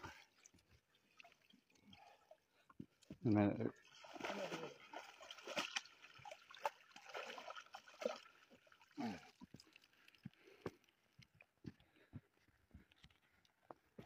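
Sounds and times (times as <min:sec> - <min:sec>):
water pouring and splashing: 0:00.0 - 0:10.6.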